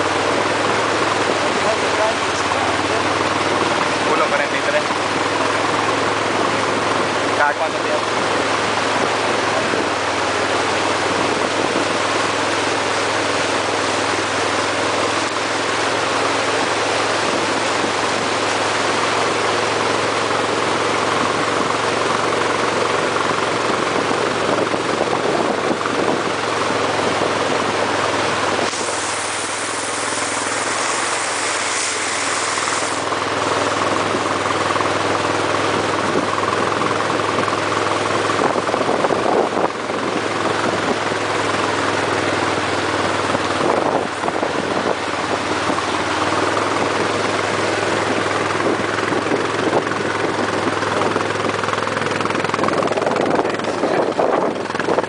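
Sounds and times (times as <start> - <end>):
truck engines running: 0.0 - 55.0
water rushing and churning: 0.0 - 55.0.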